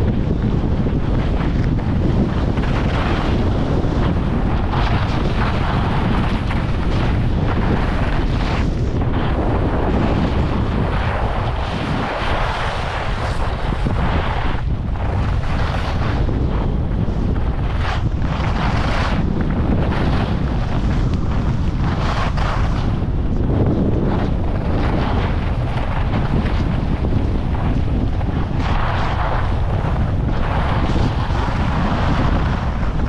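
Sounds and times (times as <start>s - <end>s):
skis scraping on snow: 0.0s - 33.0s
wind buffeting microphone: 0.0s - 33.0s.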